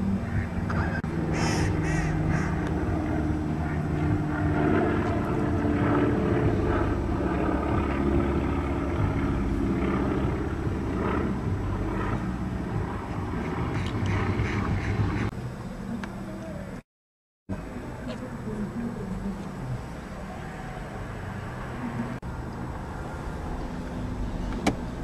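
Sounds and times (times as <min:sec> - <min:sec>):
low engine drone: 0:00.0 - 0:16.8, 0:17.5 - 0:25.0
harsh bird calls: 0:00.2 - 0:02.8.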